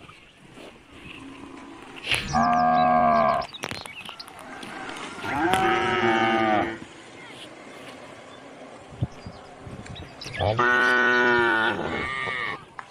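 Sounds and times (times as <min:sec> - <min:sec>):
calf mooing: 0:02.3 - 0:03.5, 0:05.2 - 0:06.8, 0:10.4 - 0:12.6.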